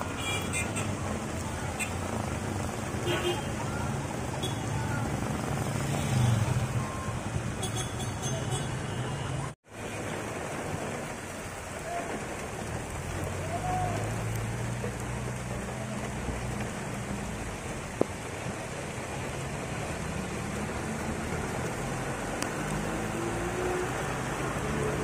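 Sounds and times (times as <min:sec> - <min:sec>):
heavy rain on pavement: 0:00.0 - 0:25.0
car engine passing: 0:19.4 - 0:25.0.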